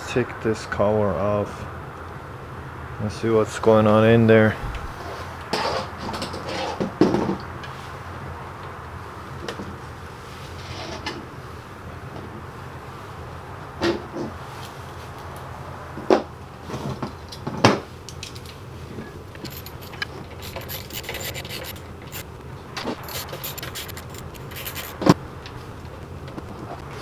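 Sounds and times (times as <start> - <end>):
plastic scraping: 19.1 - 22.2, 22.8 - 25.2.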